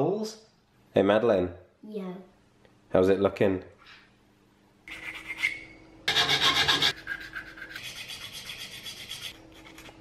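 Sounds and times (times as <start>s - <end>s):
metal file rasping on aluminium: 6.1s - 9.8s.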